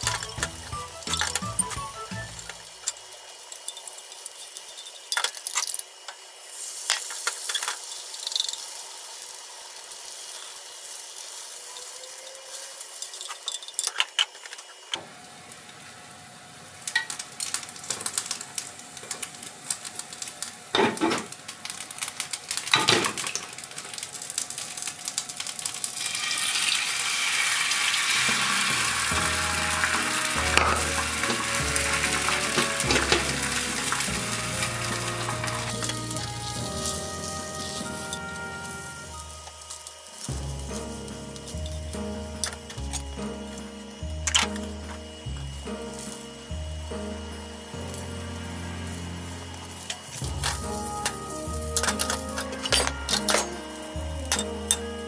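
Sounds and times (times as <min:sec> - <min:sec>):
background music with bass line: 0:00.0 - 0:02.7, 0:28.2 - 0:39.2, 0:40.3 - 0:49.6, 0:50.2 - 0:55.0
egg sizzling in a pan: 0:00.0 - 0:55.0.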